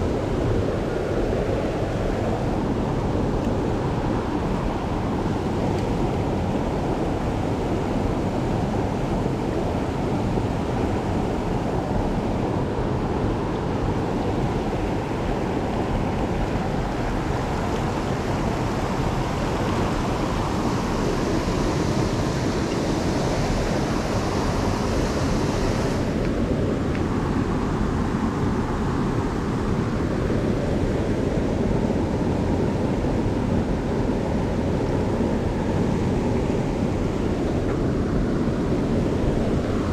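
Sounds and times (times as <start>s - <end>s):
stream water rushing: 0.0s - 39.9s
high hiss: 14.3s - 26.5s.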